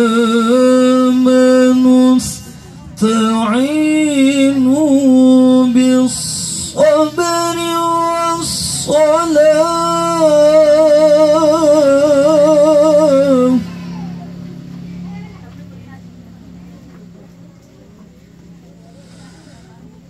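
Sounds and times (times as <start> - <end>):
man reciting melodically: 0.0 - 14.2.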